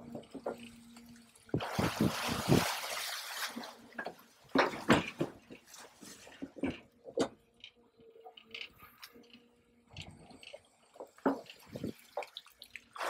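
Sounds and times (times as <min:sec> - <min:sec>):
water rushing off crane grab: 0:01.5 - 0:05.5
sharp splashes and knocks: 0:01.5 - 0:07.4, 0:11.0 - 0:13.0.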